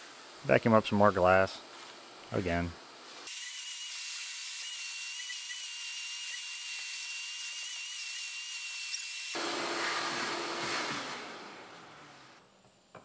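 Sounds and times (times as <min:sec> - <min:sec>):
shop vacuum whining: 0:08.9 - 0:13.0.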